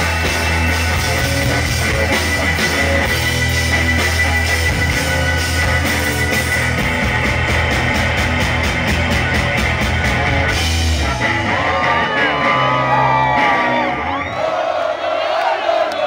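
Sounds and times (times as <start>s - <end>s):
rock band playing live: 0.0s - 14.4s
crowd cheering and whooping: 10.0s - 16.0s.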